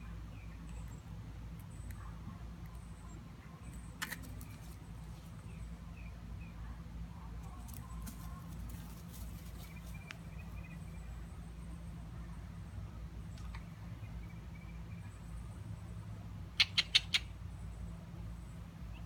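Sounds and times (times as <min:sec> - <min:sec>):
low steady rumble: 0:00.0 - 0:19.0
faint bird chirps: 0:16.6 - 0:17.8.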